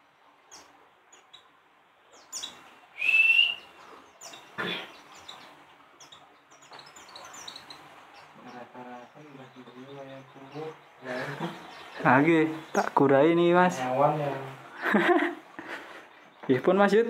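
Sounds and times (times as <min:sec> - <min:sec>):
birds chirping: 0:00.0 - 0:17.0
rising whistled bird note: 0:02.4 - 0:03.8.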